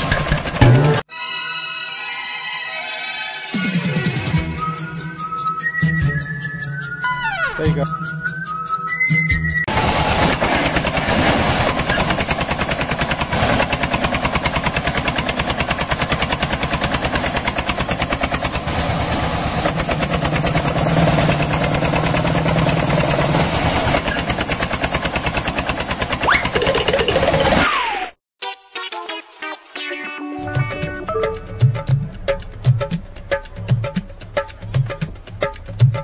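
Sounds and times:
small engine puttering: 0.0 - 1.0, 9.7 - 27.6.

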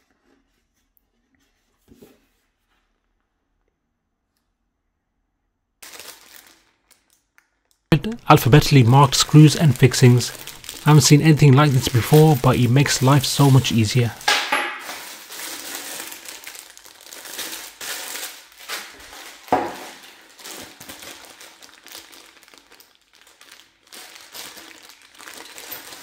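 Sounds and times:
plastic bags crinkling: 5.8 - 7.3, 8.0 - 26.0.

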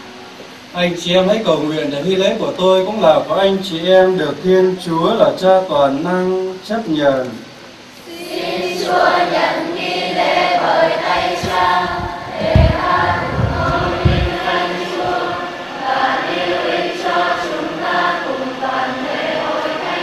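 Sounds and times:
choir singing a hymn: 7.9 - 20.0
low thuds: 11.3 - 15.4.

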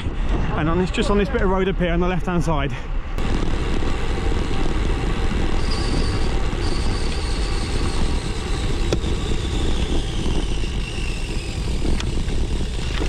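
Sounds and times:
bicycle road noise: 0.0 - 13.0
wind rumbling on microphone: 0.0 - 13.0.

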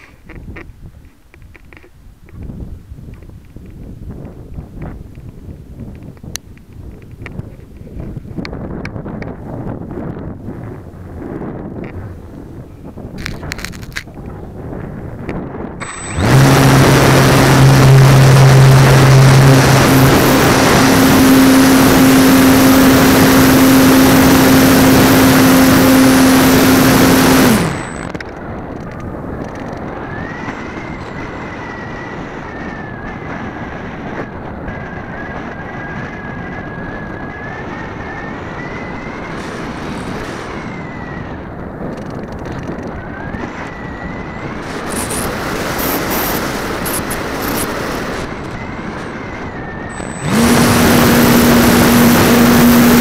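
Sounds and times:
model airplane motor and propeller: 0.0 - 53.0
wind rush over airframe: 0.0 - 53.0
faint wavering whine: 15.8 - 28.2.

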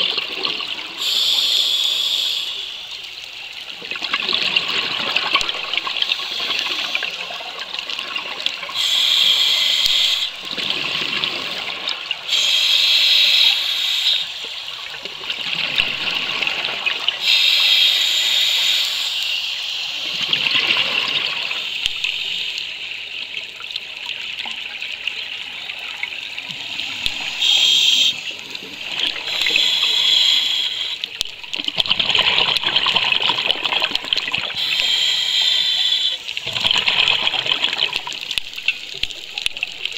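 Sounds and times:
hissing regulator inhalation: 1.0 - 3.1, 6.0 - 7.5, 8.7 - 14.8, 17.2 - 20.7, 21.4 - 22.8, 26.5 - 31.2, 33.2 - 37.4
bubbling exhalations: 26.5 - 39.9.

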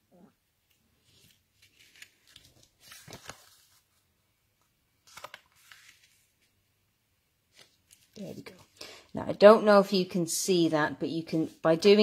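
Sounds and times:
paper rustling and scraping: 1.0 - 4.1, 5.0 - 6.5.

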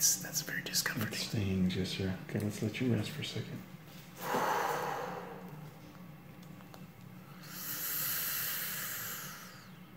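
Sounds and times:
person breathing out heavily: 4.2 - 5.6.

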